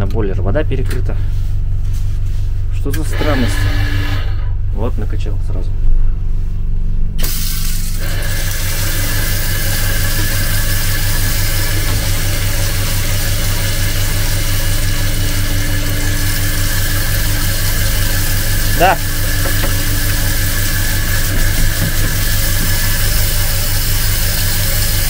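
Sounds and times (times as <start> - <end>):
electrical hum: 0.0 - 25.0
steady whine: 2.8 - 25.0
tap water running into sink: 7.6 - 25.0.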